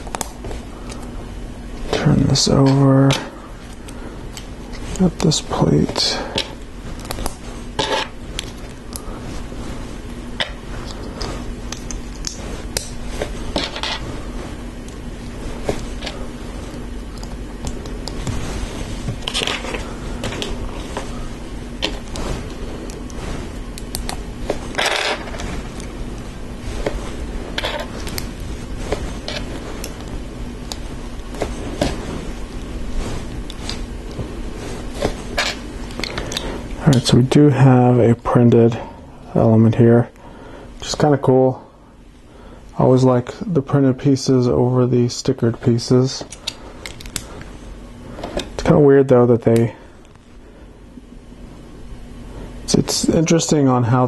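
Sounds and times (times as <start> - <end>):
scraping rustle: 18.1 - 23.7.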